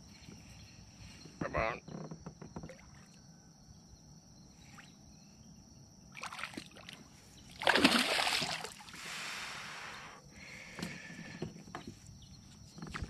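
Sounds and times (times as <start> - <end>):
fish splashing in water: 7.5 - 9.0.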